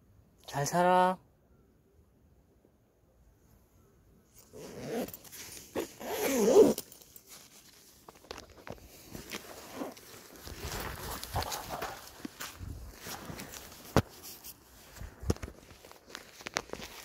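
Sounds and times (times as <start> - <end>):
clothing and bag rustling: 4.3 - 17.0
zipper-like rasp: 4.4 - 6.9, 9.3 - 10.0
small clicks and scuffs: 6.6 - 17.0.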